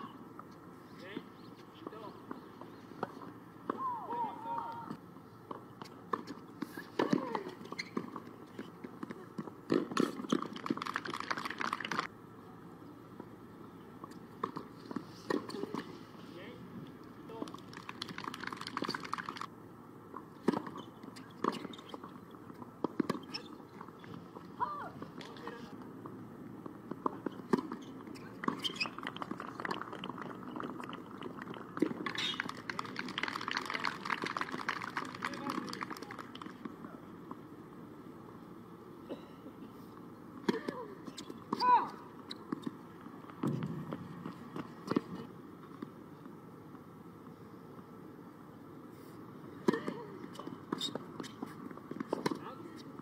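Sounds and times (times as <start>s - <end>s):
low outdoor background: 0.0s - 53.0s
voices: 3.7s - 5.0s, 28.2s - 37.1s
dense patter of clicks: 10.3s - 12.1s, 17.4s - 19.5s, 29.0s - 36.6s
low background murmur: 21.0s - 42.2s.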